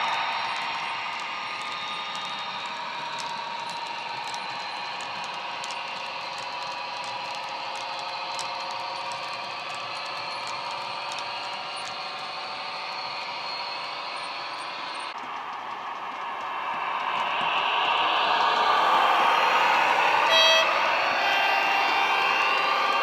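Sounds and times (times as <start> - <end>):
clicks at rail joints: 0.0 - 17.6
model train wheels rolling: 0.0 - 23.0.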